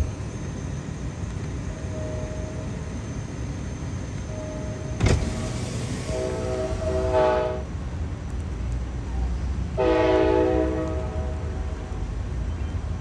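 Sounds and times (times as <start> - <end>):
low rumble of train: 0.0 - 13.0
train horn blasts: 6.0 - 7.7, 9.8 - 11.9.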